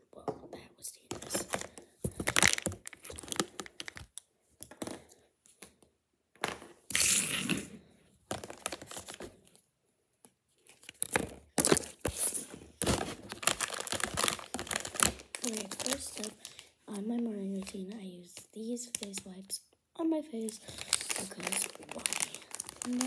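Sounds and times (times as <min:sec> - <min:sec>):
packaging crinkling: 0:01.2 - 0:04.2, 0:08.3 - 0:09.4, 0:10.6 - 0:16.7, 0:20.4 - 0:23.0
packaging tearing: 0:01.5 - 0:04.2, 0:06.9 - 0:07.7, 0:10.7 - 0:16.7, 0:20.5 - 0:23.0.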